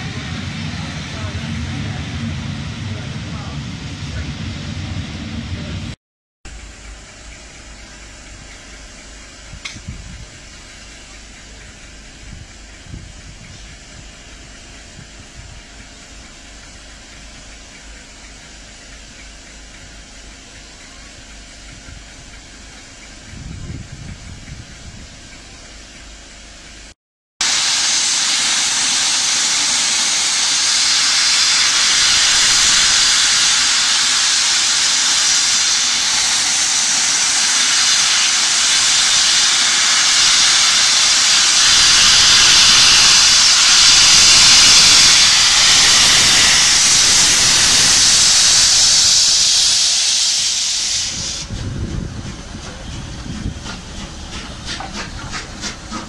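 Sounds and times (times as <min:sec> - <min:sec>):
steam hissing: 0:00.0 - 0:06.0, 0:27.4 - 0:56.0
locomotive chuffing beats: 0:00.0 - 0:26.9, 0:27.9 - 0:56.0.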